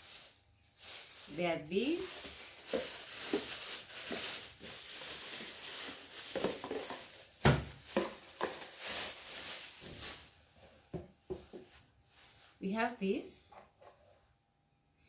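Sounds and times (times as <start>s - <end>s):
plastic wrapping crinkling: 0.0s - 10.7s.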